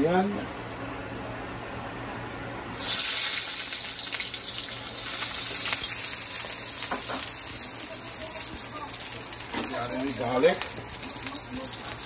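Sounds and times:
onions sizzling in oil: 2.8 - 12.0.

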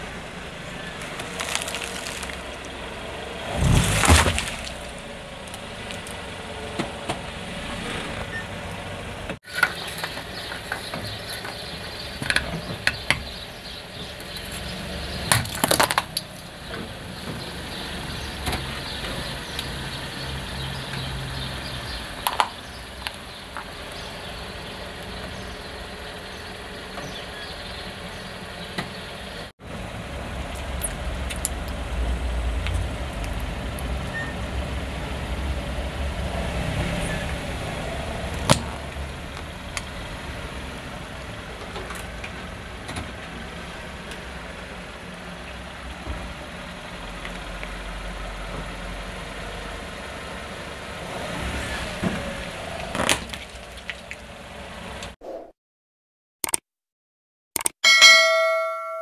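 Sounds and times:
car engine idling: 0.0 - 36.4
sharp clicks and cracks: 56.4 - 56.6, 57.6 - 57.8.

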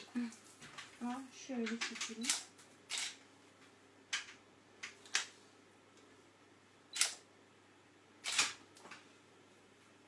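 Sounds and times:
camera shutter clicks: 7.0 - 7.2, 8.2 - 8.6.

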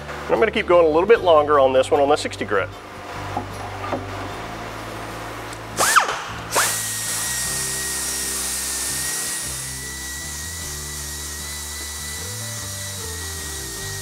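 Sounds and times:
pneumatic grinder whining: 5.8 - 14.0.

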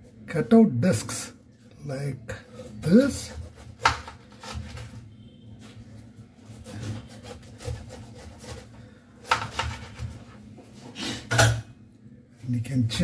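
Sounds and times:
knife sawing through pineapple: 2.7 - 4.8, 6.5 - 10.2.

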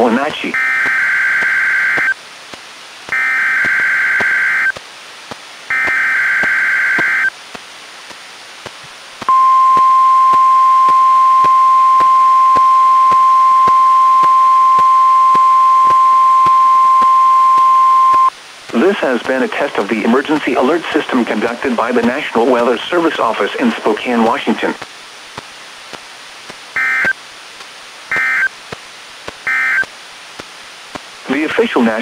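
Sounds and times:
faint radio hiss: 0.0 - 32.0
buzzy digital data bursts: 0.5 - 2.2, 3.1 - 4.8, 5.7 - 7.3, 26.8 - 27.2.

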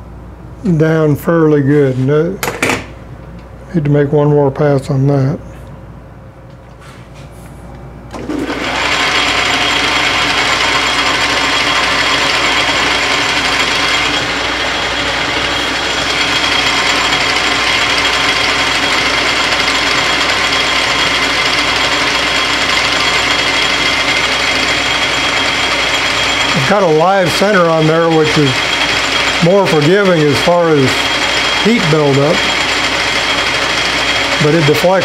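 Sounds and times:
metal lathe whining: 8.2 - 35.0.

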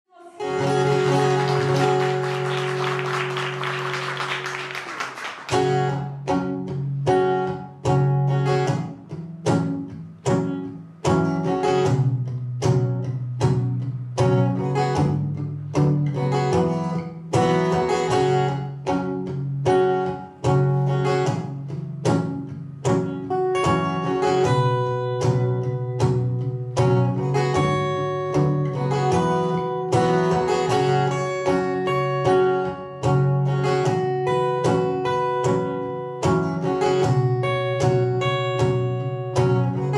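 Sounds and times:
short picked guitar chords: 0.1 - 39.9
acoustic guitar chord ringing: 0.2 - 7.0.

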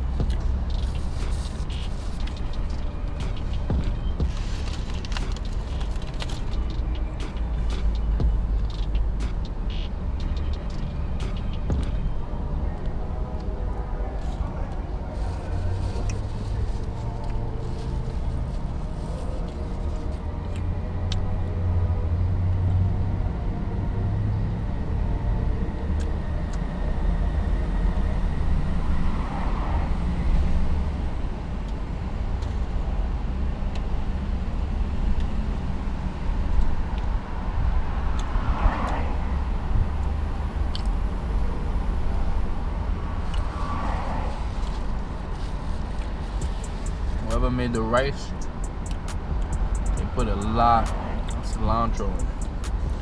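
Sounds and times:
traffic rumble: 0.0 - 53.0
car passing: 27.2 - 31.8, 34.6 - 53.0.

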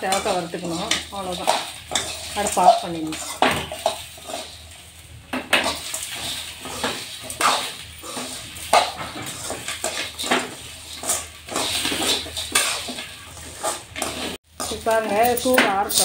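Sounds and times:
metal spatula scraping a metal pan: 0.0 - 4.9, 5.5 - 16.0.

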